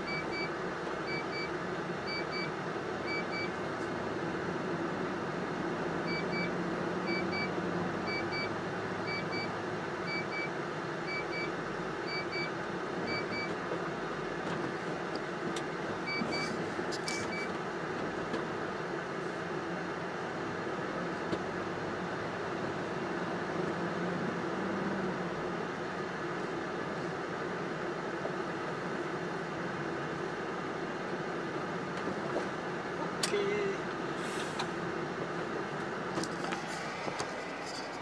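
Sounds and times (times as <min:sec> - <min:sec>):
truck engine and road noise: 0:00.0 - 0:38.0.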